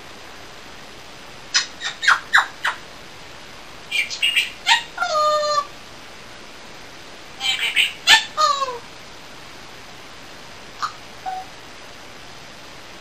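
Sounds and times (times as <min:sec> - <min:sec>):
parrot chirping and whistling: 0:01.5 - 0:02.8, 0:03.9 - 0:05.7, 0:07.4 - 0:08.8, 0:10.8 - 0:11.5.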